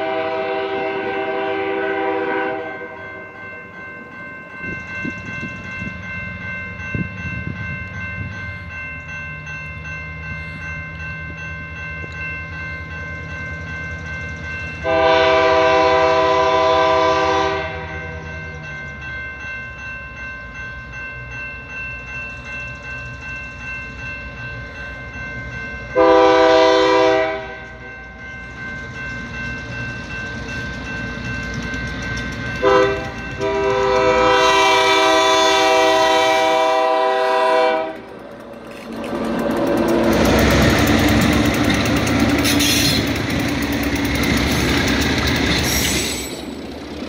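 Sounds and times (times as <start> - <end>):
locomotive horn blasts: 0.0 - 3.0, 14.8 - 18.2, 26.0 - 27.6, 32.6 - 38.1
crossing warning bell ringing: 0.0 - 47.0
engine and train rumble: 0.0 - 47.0
locomotives passing close: 37.8 - 47.0.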